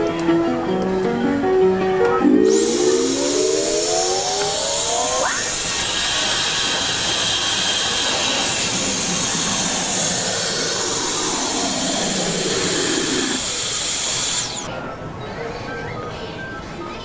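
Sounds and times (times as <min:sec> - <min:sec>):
vending machine motor whine: 0:02.2 - 0:14.7.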